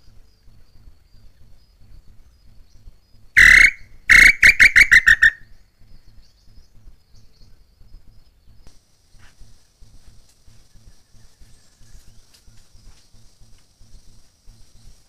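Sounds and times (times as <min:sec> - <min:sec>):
insects trilling: 0:00.0 - 0:15.0
bird call: 0:03.4 - 0:07.5.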